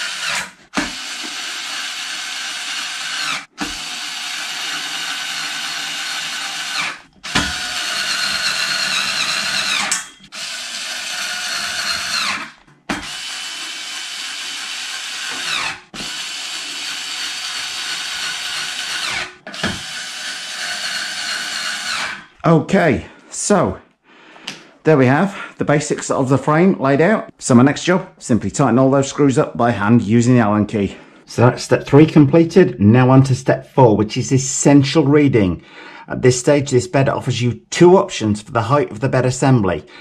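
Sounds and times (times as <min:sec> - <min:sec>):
cordless screwdriver motor whine: 0:06.0 - 0:22.2.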